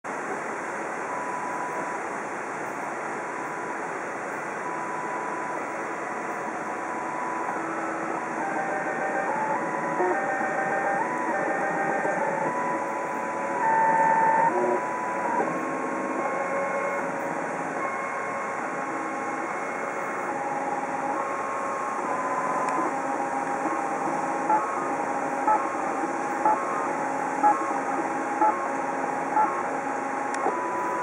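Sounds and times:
steady hiss: 0.1 - 31.0
stepper motors whining: 6.3 - 31.0.

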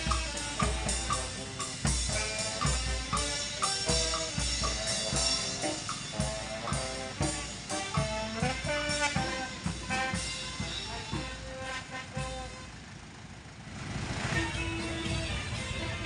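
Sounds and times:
bass drum and snare beat: 0.0 - 12.6
brass band playing: 0.0 - 13.0, 14.2 - 16.0
horn melody: 0.0 - 13.2, 14.2 - 16.0.

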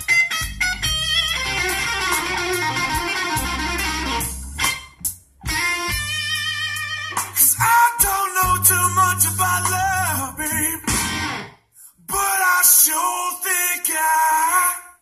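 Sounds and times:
guitar song on car stereo: 0.0 - 11.6.

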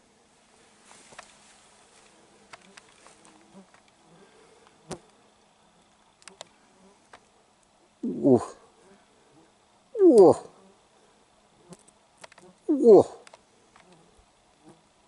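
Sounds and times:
insect buzzing: 1.1 - 15.0
sharp clicks and small snaps: 6.2 - 6.5, 11.7 - 12.5.

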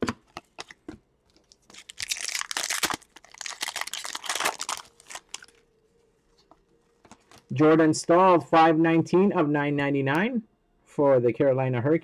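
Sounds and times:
foil wrapper tearing and crinkling: 1.4 - 5.6.

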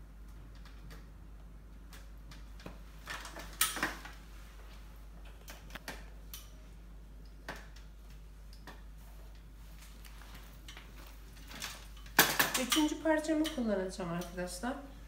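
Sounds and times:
low steady hum: 0.0 - 15.0
fabric rustling: 9.0 - 12.1.

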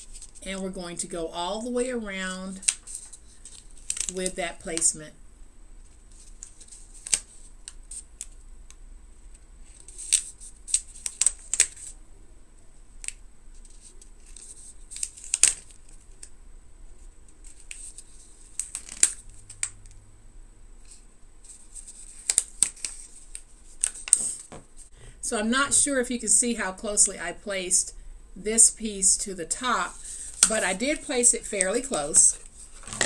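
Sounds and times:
paper crackling and tapping: 2.6 - 4.8, 6.1 - 8.4, 9.3 - 11.9, 17.3 - 20.0, 20.8 - 24.6.

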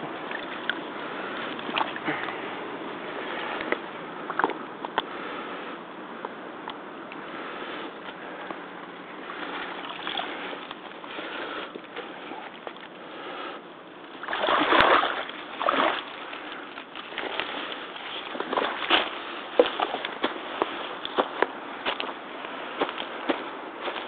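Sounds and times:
surge of water noise: 14.2 - 20.0
rubber boots stepping through water: 14.2 - 22.2.

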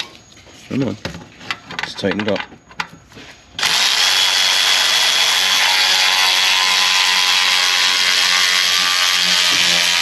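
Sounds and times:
power ratchet running: 3.6 - 10.0.

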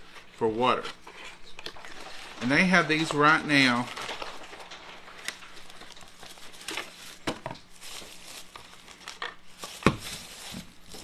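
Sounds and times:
crinkling plastic wrap: 1.5 - 11.0.

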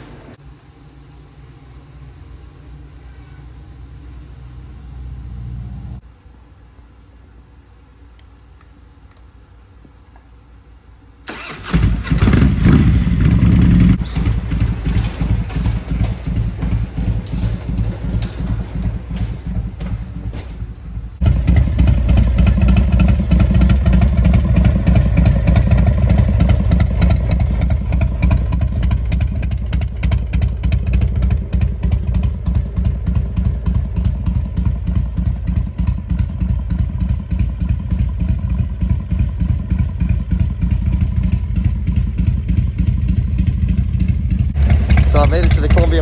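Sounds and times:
motorcycle engine idling: 11.3 - 46.0.

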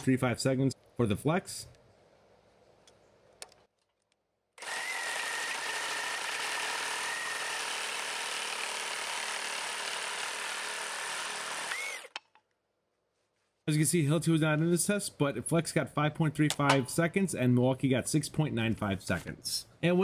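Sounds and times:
reciprocating saw cutting timber: 4.6 - 12.3.

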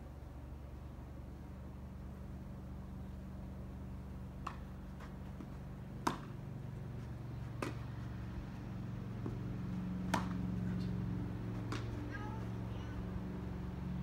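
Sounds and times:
low hum: 0.0 - 14.0
ball struck and bouncing: 4.4 - 4.7, 6.0 - 6.4, 7.6 - 7.9, 9.2 - 12.2.

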